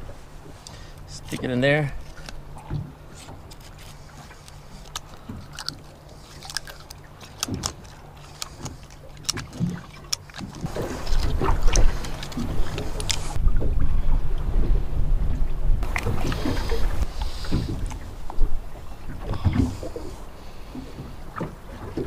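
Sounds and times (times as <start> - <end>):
screwdriver scraping inside shell: 3.2 - 13.4.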